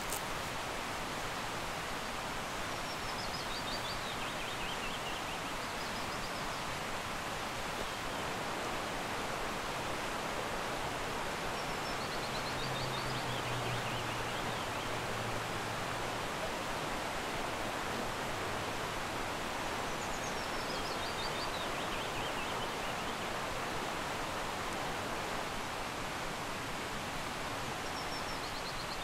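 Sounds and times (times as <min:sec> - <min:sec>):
fast-flowing stream rushing: 0:00.0 - 0:29.0
songbird singing: 0:11.6 - 0:15.0, 0:19.8 - 0:23.3.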